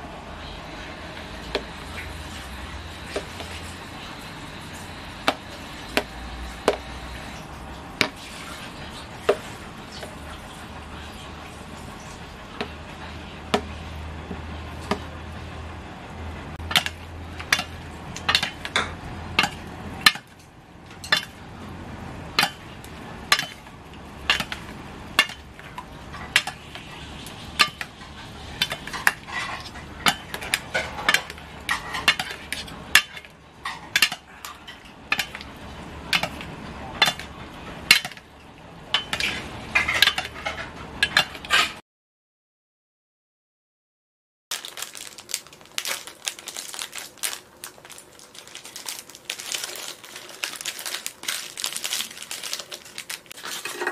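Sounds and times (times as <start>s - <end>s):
metal utensils clinking on a bowl: 38.9s - 41.8s.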